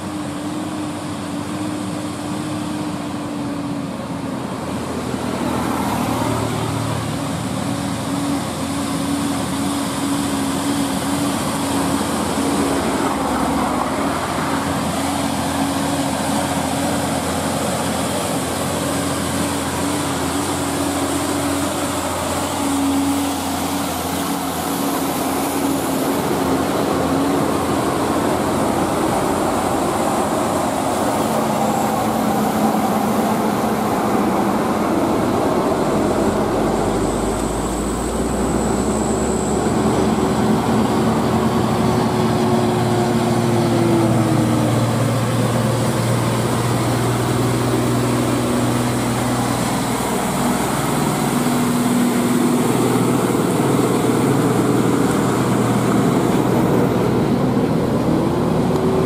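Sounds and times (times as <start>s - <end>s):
heavy diesel trucks climbing: 0.0s - 59.0s
road noise: 0.0s - 59.0s.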